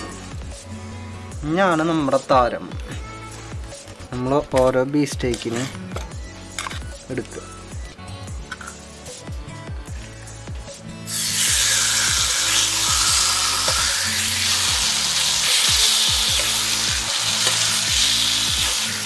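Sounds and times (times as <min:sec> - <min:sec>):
background music with steady beat: 0:00.0 - 0:19.0
steak sizzling in a pan: 0:11.1 - 0:19.0.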